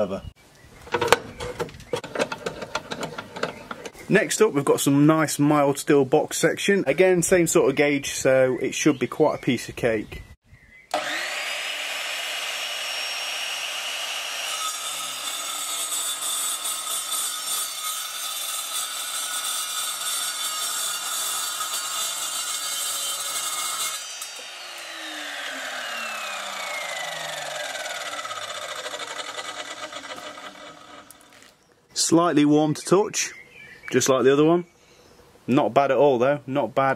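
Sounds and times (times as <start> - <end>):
blade winding down whine: 10.9 - 15.6, 23.2 - 31.3
saw blade cutting steel: 10.9 - 31.3
chop saw motor running: 10.9 - 31.5.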